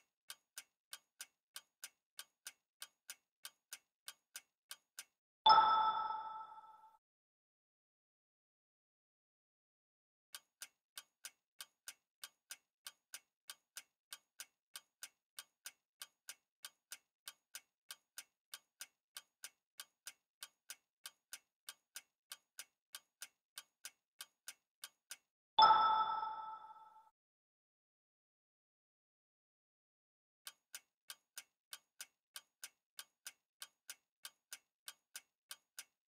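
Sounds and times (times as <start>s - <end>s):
clock-like timer ticks: 0.0s - 7.0s, 10.3s - 27.1s, 30.4s - 36.0s
bright chime: 5.5s - 6.9s, 25.6s - 27.0s.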